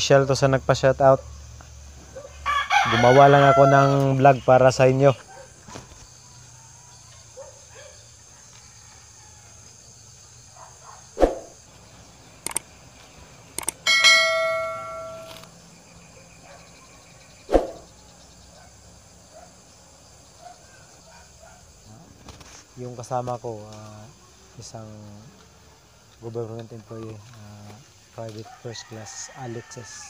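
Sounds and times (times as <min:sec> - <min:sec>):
metal object ringing like a bell: 0:13.9 - 0:15.4.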